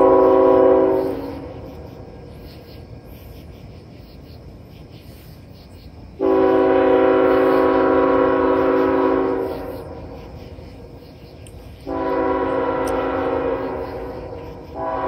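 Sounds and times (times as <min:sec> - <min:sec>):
locomotive air horn blast: 0:00.0 - 0:01.5, 0:06.2 - 0:09.8, 0:11.8 - 0:15.0.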